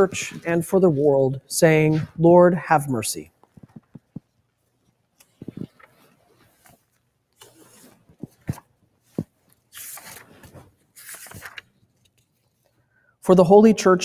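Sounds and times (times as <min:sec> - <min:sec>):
cloth rustling: 0:03.4 - 0:12.8.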